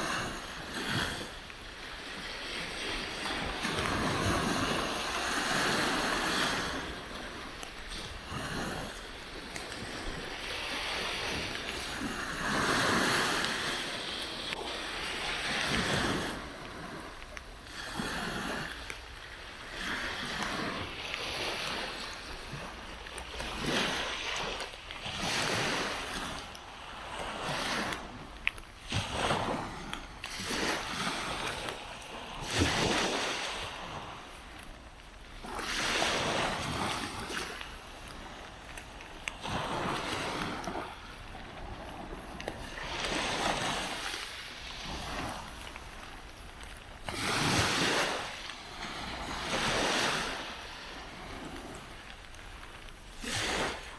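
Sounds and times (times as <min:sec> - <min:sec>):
small waves washing up beach: 0:00.0 - 0:53.9.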